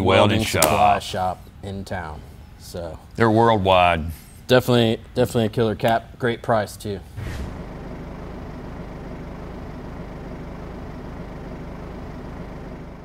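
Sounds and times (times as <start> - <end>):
engine droning: 7.2 - 13.0.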